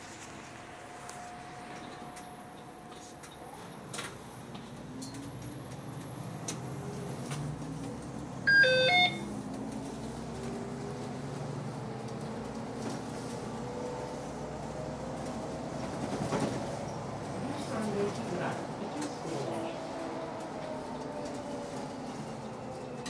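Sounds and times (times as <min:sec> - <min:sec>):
bus engine running: 0:00.0 - 0:23.0
electronic chime beeps: 0:08.5 - 0:09.2.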